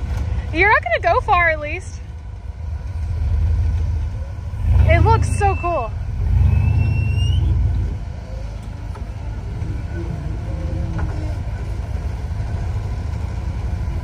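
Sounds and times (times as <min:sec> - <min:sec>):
off-road vehicle engine running: 0:00.0 - 0:14.0
short rising whine: 0:05.4 - 0:08.5.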